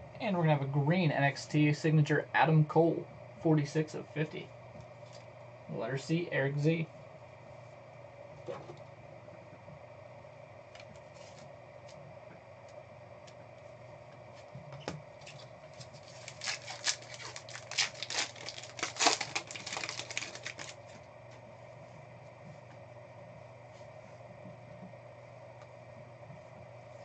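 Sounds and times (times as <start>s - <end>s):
low steady hum: 0.0s - 27.0s
foil wrapper crinkling and tearing: 15.3s - 21.0s.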